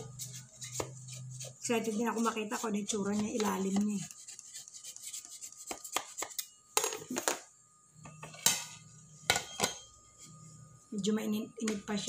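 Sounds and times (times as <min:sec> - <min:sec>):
spatula scraping metal cake pan: 0:00.0 - 0:06.2.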